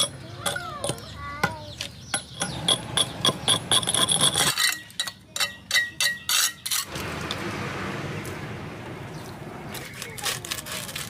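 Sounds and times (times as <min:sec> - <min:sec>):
sharp ringing metal knocks: 0:00.0 - 0:06.7
metal tool scraping stove: 0:02.7 - 0:06.9.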